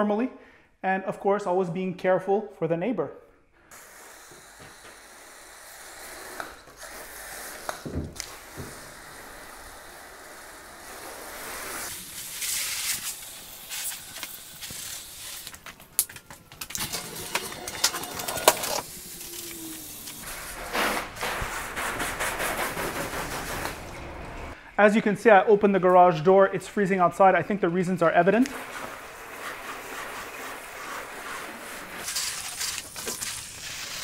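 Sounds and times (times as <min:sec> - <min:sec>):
hose spraying water on car: 0:03.7 - 0:15.6, 0:16.9 - 0:21.8, 0:28.5 - 0:34.0.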